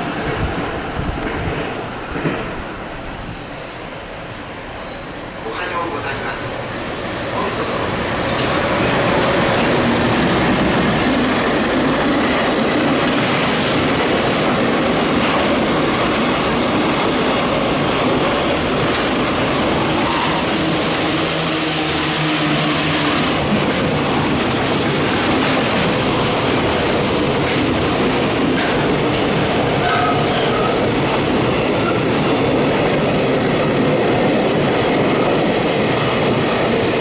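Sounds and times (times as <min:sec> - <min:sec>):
train wheels rumbling on rails: 0:00.0 - 0:04.2, 0:04.8 - 0:37.0.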